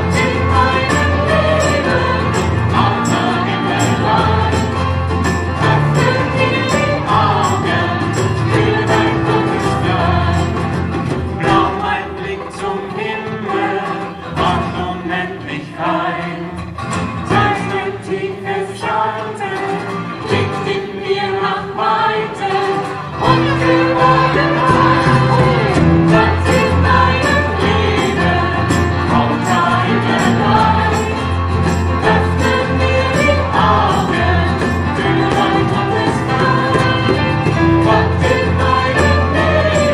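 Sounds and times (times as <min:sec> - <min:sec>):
acoustic band playing and singing: 0:00.0 - 0:39.9
bass notes: 0:23.2 - 0:39.9.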